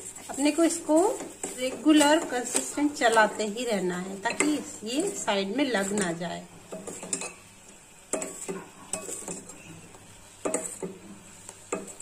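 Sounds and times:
spoon scraping a steel pan: 4.3 - 7.5, 8.1 - 9.8, 10.4 - 11.0.

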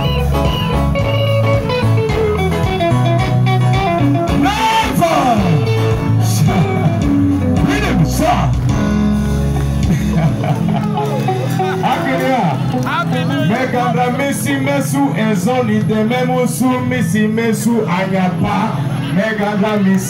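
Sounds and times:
live band guitar and bass: 0.0 - 20.0
person singing: 4.3 - 7.1.

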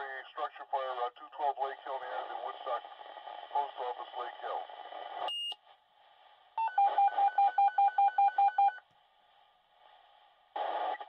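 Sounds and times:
radio hiss: 0.0 - 5.3, 10.6 - 11.0.

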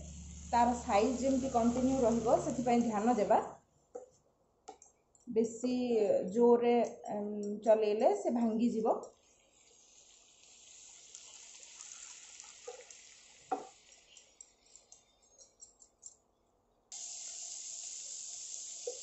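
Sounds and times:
vegetables sizzling in a pan: 0.0 - 3.3, 9.2 - 14.8, 16.9 - 19.0.

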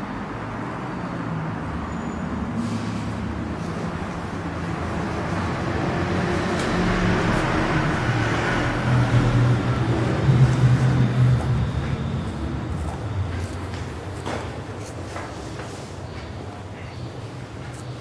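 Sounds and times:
engine running: 2.7 - 14.8.

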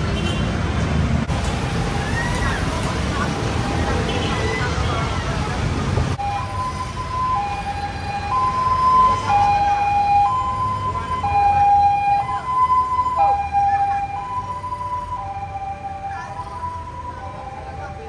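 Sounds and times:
two-tone siren: 6.2 - 18.0.

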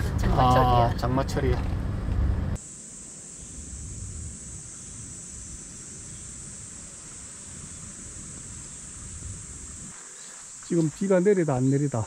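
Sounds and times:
insects chirring: 2.6 - 12.0
wind rumble on microphone: 3.6 - 10.0.

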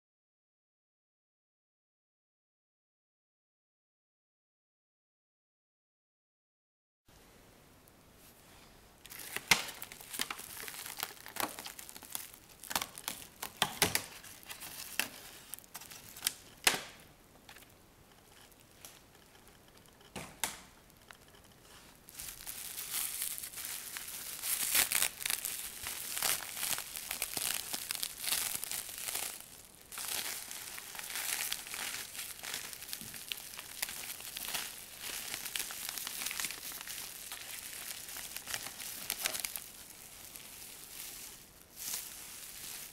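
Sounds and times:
bubble wrap crinkling: 9.0 - 42.9
plastic packaging crackling: 9.0 - 42.9.

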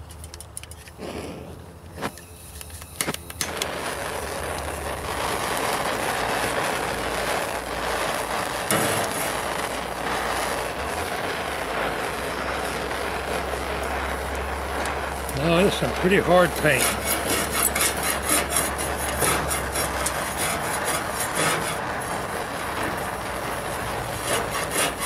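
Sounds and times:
torch flame hissing: 0.8 - 25.0
torch igniter clicks: 1.8 - 4.8.

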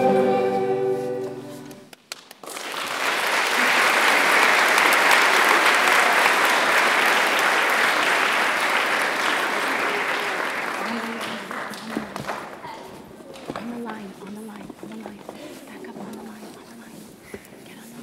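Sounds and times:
audience applause: 2.0 - 12.8.

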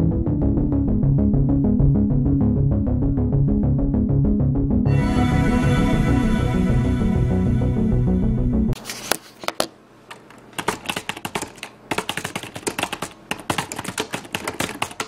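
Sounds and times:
loud music: 0.0 - 8.8
computer keyboard typing clicks: 10.1 - 15.0.

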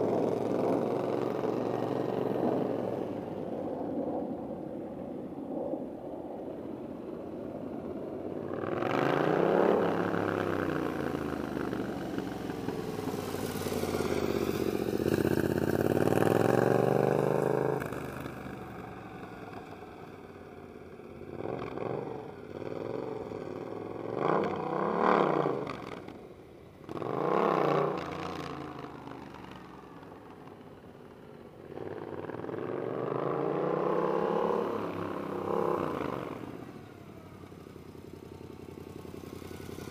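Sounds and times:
motorcycle engine revving: 8.4 - 19.2, 21.3 - 26.2, 26.8 - 30.0, 31.6 - 39.9.

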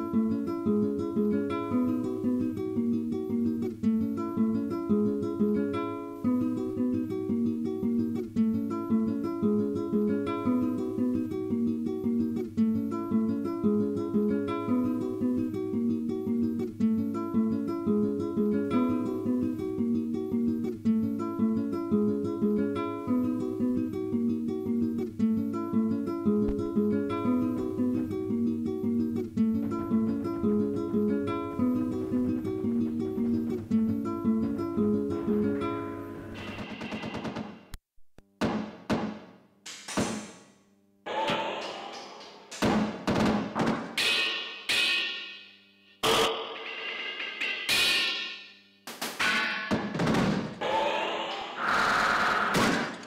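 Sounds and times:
plucked guitar picking: 0.0 - 36.4.

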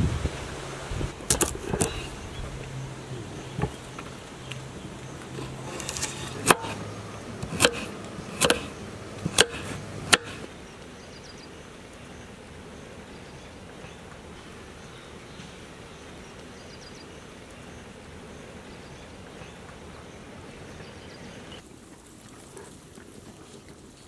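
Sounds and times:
knife slicing carrot on board: 7.4 - 10.4.

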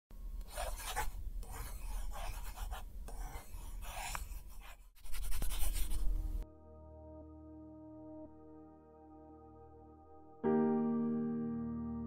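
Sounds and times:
pen scratching on paper: 0.4 - 6.2.

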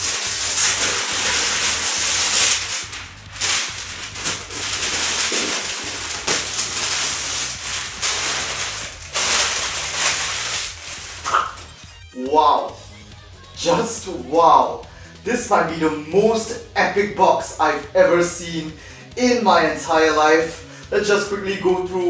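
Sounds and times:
plastic sheet crinkly rustling: 0.0 - 12.0.

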